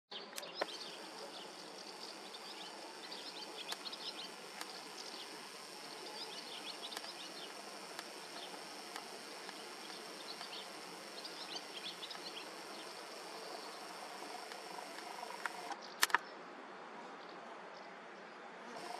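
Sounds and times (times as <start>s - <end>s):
small birds chirping: 0.2s - 16.4s
sharp clicks: 0.3s - 1.0s, 3.6s - 16.2s
faint hiss: 0.4s - 16.2s
high-pitched insect buzz: 0.5s - 15.8s.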